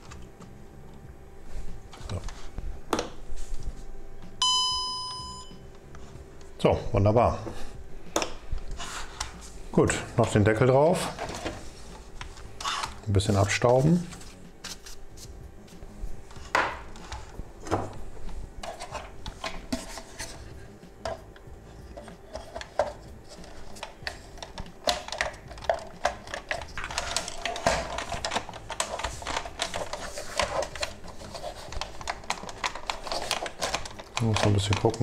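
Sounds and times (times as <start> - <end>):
plastic parts clicking and rubbing: 21.8 - 35.0.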